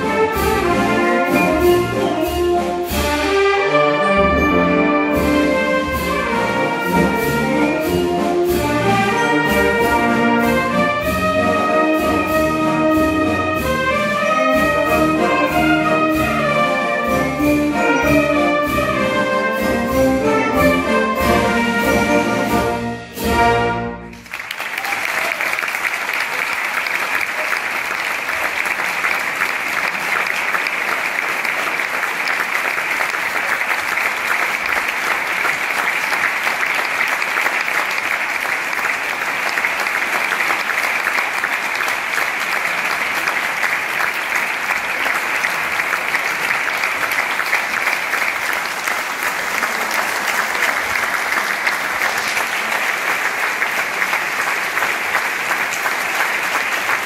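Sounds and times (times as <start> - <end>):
audience applauding: 24.0 - 57.0.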